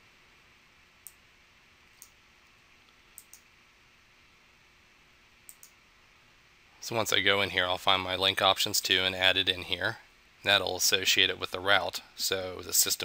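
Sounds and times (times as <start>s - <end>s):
faint computer mouse clicks: 2.0s - 2.2s, 2.9s - 3.5s, 5.5s - 5.8s.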